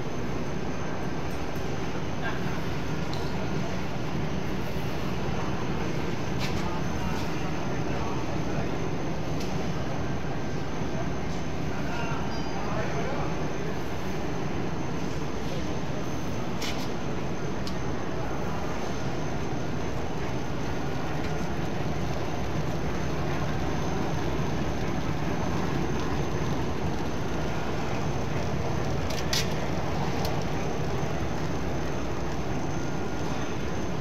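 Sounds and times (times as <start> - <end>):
faint high whine: 0.0 - 34.0
printing press running: 16.0 - 34.0.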